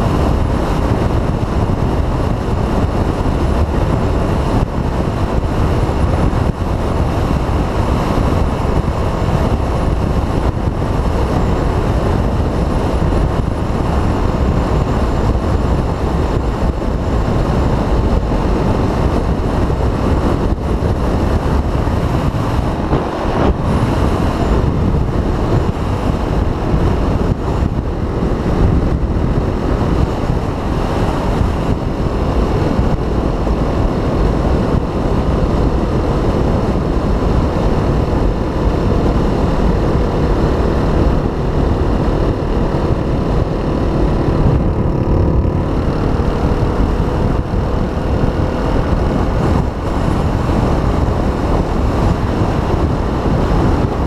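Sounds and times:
motorcycle engine running: 0.0s - 54.0s
wind rushing over microphone: 0.0s - 54.0s.

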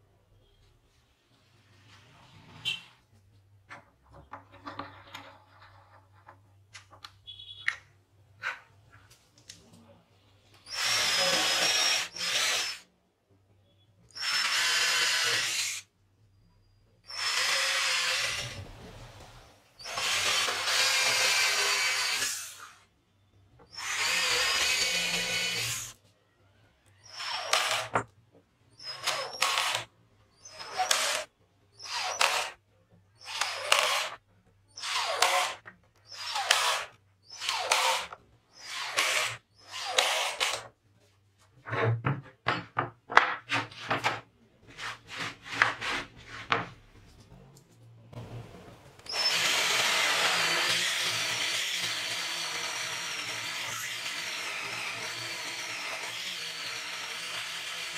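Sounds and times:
cordless drill boring into wood: 10.6s - 12.9s, 14.1s - 15.9s, 17.1s - 18.6s, 19.8s - 22.8s, 23.7s - 26.0s, 27.0s - 28.0s, 28.7s - 32.6s, 33.2s - 34.2s, 34.8s - 40.7s, 49.0s - 57.9s.

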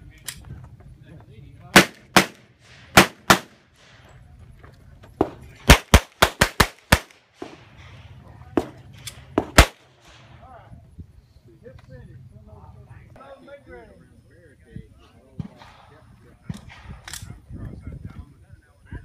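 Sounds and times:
pistol shots: 1.7s - 4.1s, 5.2s - 10.4s.

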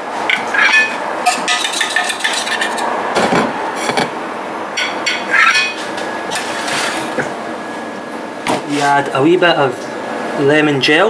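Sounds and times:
kitchen noise: 0.3s - 4.1s, 4.8s - 7.4s
spoon and saucepan clinking on plate: 0.7s - 2.8s, 4.8s - 5.8s.

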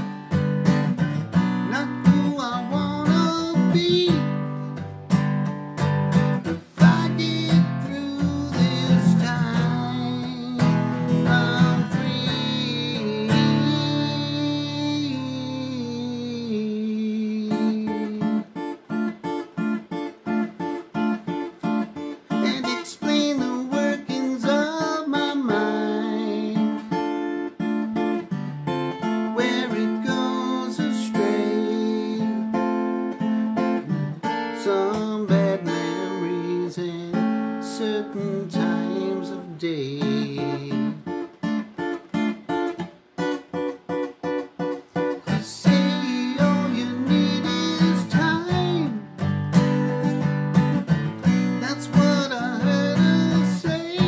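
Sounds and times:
acoustic guitar strumming: 0.0s - 54.0s.

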